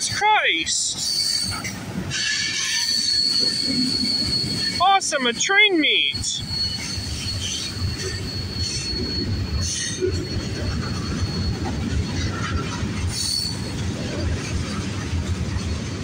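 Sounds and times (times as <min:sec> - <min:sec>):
freight train rumbling past: 0:00.0 - 0:16.0
train wheels squealing: 0:00.4 - 0:15.8.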